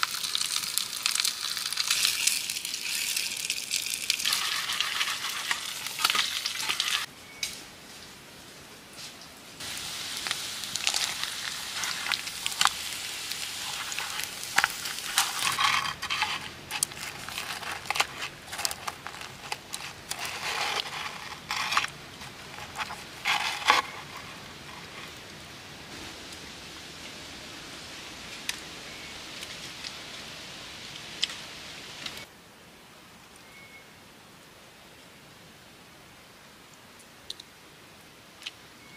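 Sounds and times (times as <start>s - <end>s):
meat sizzling in a pan: 0.0s - 7.1s, 9.6s - 16.3s
oil popping and crackling: 0.0s - 7.1s, 9.6s - 25.3s.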